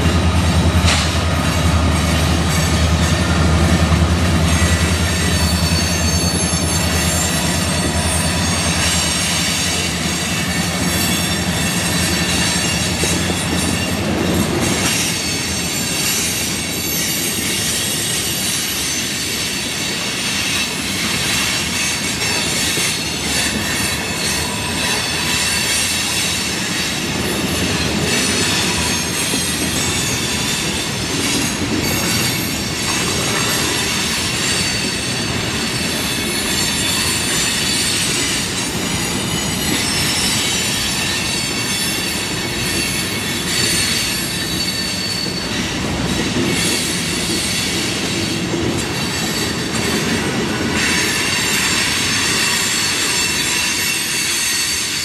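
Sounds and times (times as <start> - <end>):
train wheels rumbling on rails: 0.0 - 55.0
high-pitched wheel squeal: 4.5 - 14.0, 28.1 - 47.7, 50.8 - 55.0.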